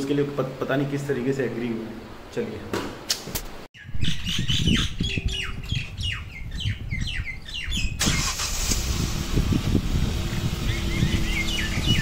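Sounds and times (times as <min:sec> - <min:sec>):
birds chirping: 0:03.8 - 0:08.0, 0:10.0 - 0:12.0
car engine rattling: 0:08.0 - 0:12.0.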